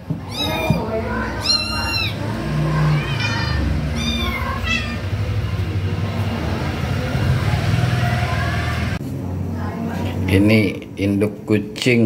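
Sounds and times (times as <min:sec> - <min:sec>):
kitten mewing: 0:00.2 - 0:05.1.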